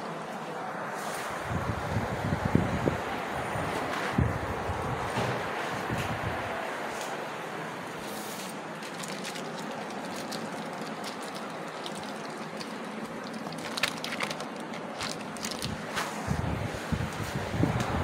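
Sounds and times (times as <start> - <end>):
handling clicks and crackles: 8.4 - 16.2.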